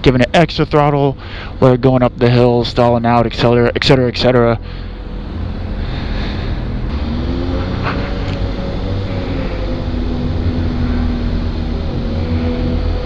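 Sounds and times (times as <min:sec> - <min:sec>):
motorcycle engine at low revs: 0:04.6 - 0:13.0.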